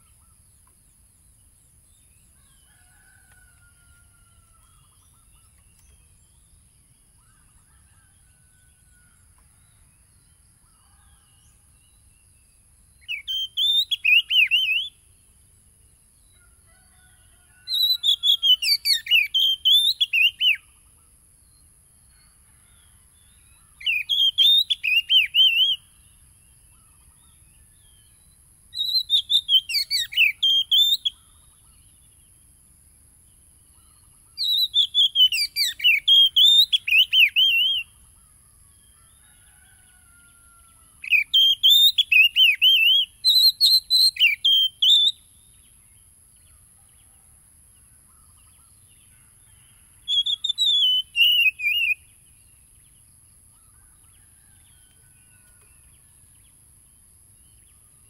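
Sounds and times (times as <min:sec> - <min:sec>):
songbird whistling phrases: 0:13.0 - 0:15.0, 0:17.7 - 0:20.6, 0:23.8 - 0:25.8, 0:28.8 - 0:31.3, 0:34.4 - 0:37.9, 0:41.0 - 0:45.3, 0:50.1 - 0:52.1.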